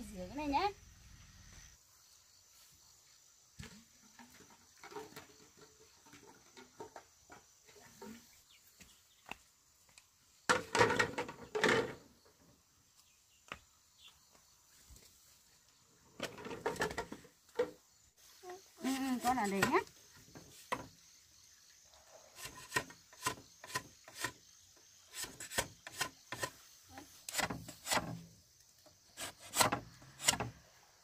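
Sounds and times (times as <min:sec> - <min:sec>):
bamboo poles clattering: 0:03.6 - 0:08.3, 0:10.5 - 0:12.2, 0:16.1 - 0:17.8, 0:18.8 - 0:21.0, 0:22.4 - 0:24.4, 0:25.1 - 0:30.6.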